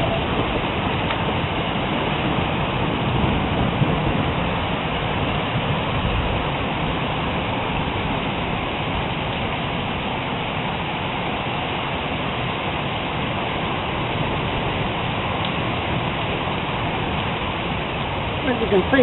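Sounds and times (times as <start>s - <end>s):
heavy rain: 0.0s - 19.0s.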